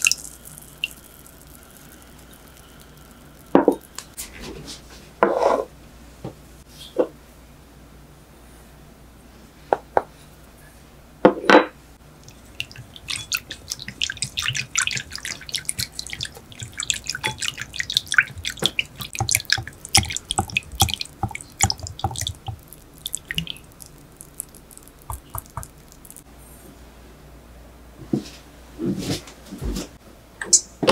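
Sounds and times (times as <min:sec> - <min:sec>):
liquid splashing: 0:00.0 - 0:04.2, 0:12.1 - 0:26.3
whisk clicking against glass bowl: 0:12.2 - 0:26.2.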